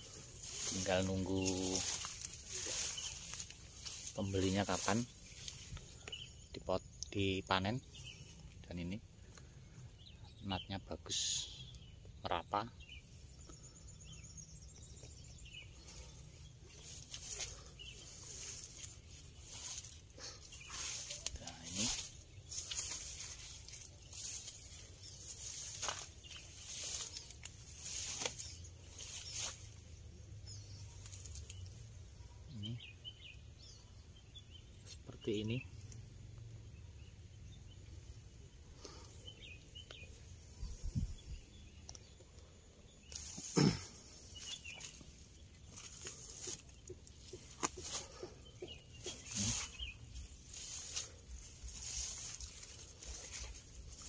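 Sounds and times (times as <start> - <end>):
leaves rustling: 0.0 - 6.4, 14.8 - 31.8, 43.0 - 54.0
faint bird chirps: 0.0 - 54.0.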